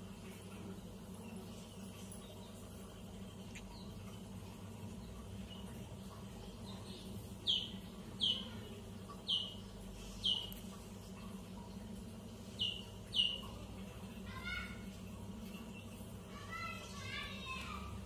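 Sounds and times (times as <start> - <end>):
steady low hum: 0.0 - 18.0
small bird chirping: 1.2 - 10.8, 12.4 - 13.7.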